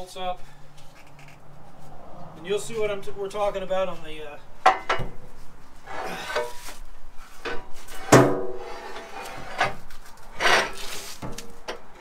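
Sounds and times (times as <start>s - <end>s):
rough metal scrape: 5.4s - 11.6s.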